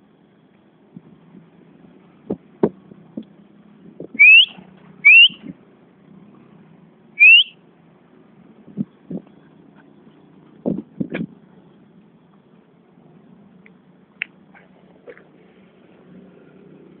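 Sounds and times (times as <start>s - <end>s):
person whistling rising pitch: 4.2s - 5.4s, 7.2s - 7.5s.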